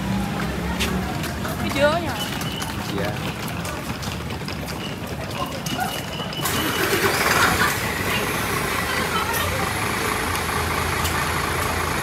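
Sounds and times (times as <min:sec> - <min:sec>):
large vehicle engine idling: 0:06.0 - 0:12.0.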